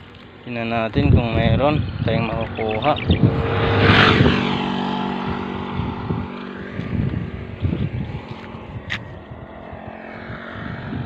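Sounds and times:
passing vehicle engine: 0:00.0 - 0:11.0.

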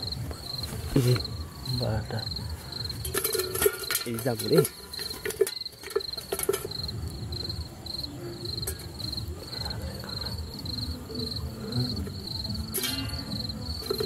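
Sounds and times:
rustling and handling noise: 0:00.0 - 0:01.4, 0:02.5 - 0:07.1
cricket chirping: 0:00.0 - 0:14.0.

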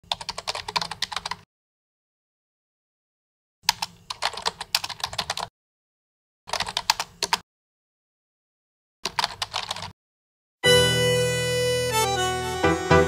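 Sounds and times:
computer keyboard typing: 0:00.1 - 0:01.4, 0:03.7 - 0:05.5, 0:06.5 - 0:07.4, 0:09.0 - 0:09.9.

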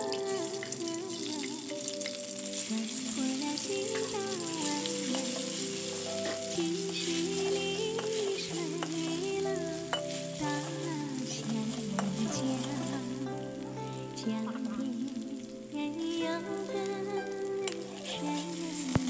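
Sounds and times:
background music with melody: 0:00.0 - 0:19.0
paste sizzling in hot oil: 0:00.0 - 0:19.0
spatula stirring in wok: 0:02.6 - 0:13.2.

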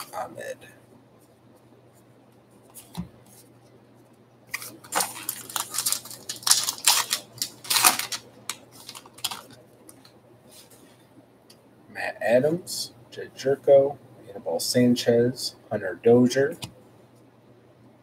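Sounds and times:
foil pack crinkling and ripping: 0:04.5 - 0:09.6.

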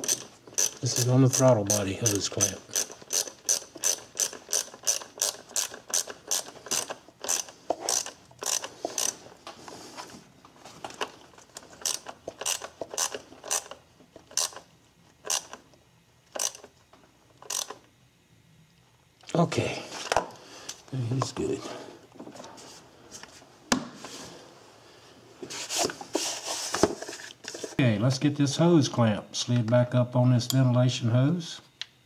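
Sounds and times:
hand ratchet clicking: 0:00.0 - 0:09.2, 0:11.5 - 0:14.6, 0:15.2 - 0:15.6, 0:16.3 - 0:16.7, 0:17.4 - 0:17.8.

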